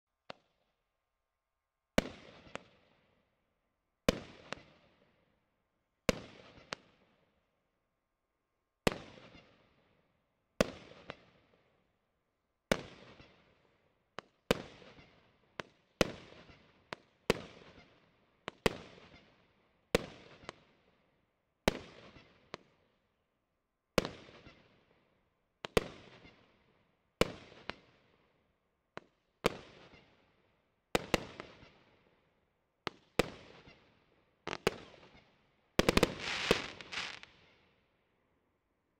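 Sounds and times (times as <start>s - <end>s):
fireworks cake firing shots: 35.8s - 37.4s.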